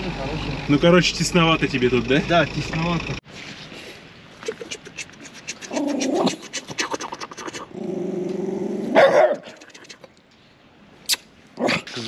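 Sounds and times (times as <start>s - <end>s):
dog growling: 5.6s - 6.5s, 7.1s - 9.6s
dog barking: 8.9s - 9.5s.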